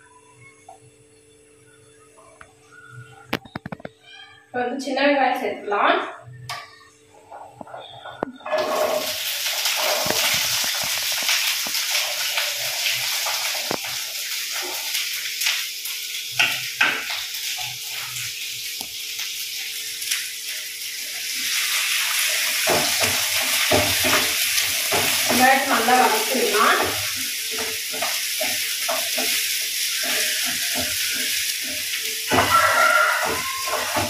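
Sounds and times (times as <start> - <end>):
frying crackles: 6.5 - 34.0
spatula stirring in pan: 7.2 - 15.2, 20.5 - 34.0
shallots sizzling in hot oil: 8.4 - 34.0.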